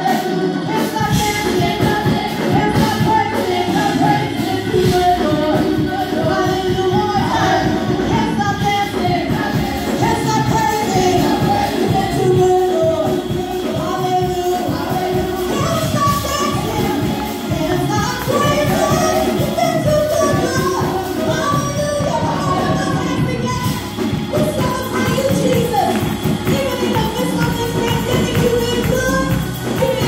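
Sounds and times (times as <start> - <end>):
group singing gospel: 0.0 - 30.0
instrumental accompaniment: 0.0 - 30.0.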